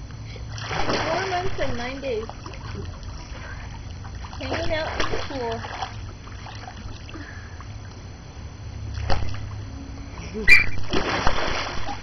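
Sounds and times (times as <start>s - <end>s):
pool water splashing: 0.5s - 7.3s, 10.5s - 12.0s.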